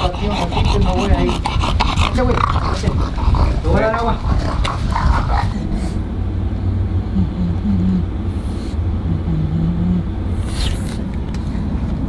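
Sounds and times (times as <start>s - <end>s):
low hum: 0.0s - 12.0s
car engine and road noise: 2.2s - 12.0s.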